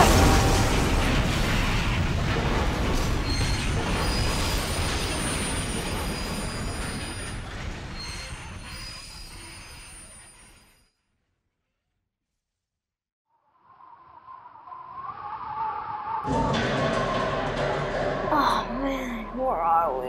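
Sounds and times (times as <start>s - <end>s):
train rumble: 0.0s - 9.6s
wheels squealing on rails: 0.0s - 11.0s.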